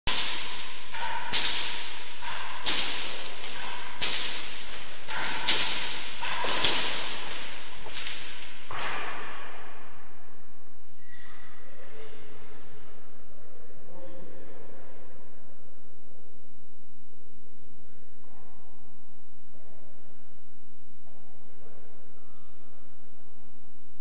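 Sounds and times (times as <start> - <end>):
racket hitting hard ball: 0.1 - 9.1
ball hitting walls: 0.1 - 9.6.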